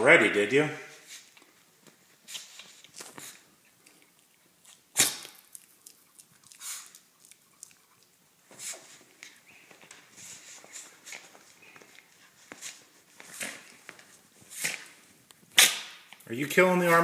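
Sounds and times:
dog scuffling with toy: 8.5s - 15.9s.

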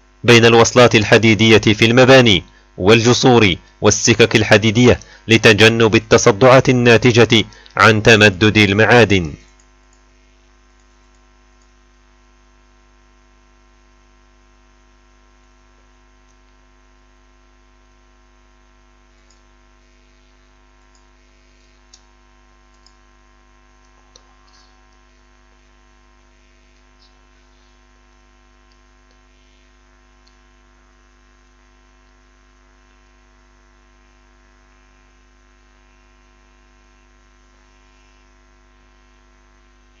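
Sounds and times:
faint mains hum: 0.0s - 40.0s
faint clicks: 10.8s - 11.8s, 22.7s - 23.0s.

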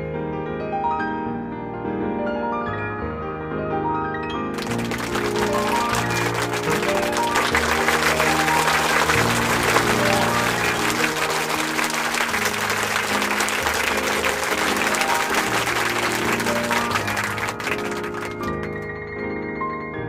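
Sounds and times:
audience applause: 4.6s - 18.9s.

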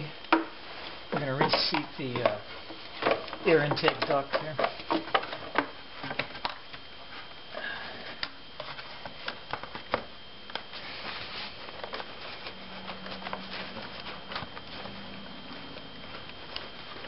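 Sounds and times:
low hum: 5.5s - 17.0s.

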